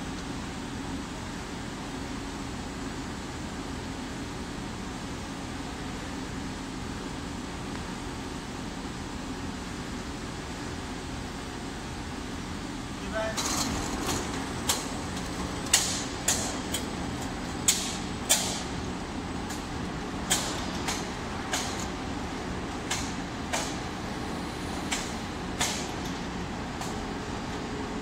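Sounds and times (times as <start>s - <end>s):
machinery humming: 0.0s - 28.0s
sharp metallic clacks: 17.6s - 18.7s.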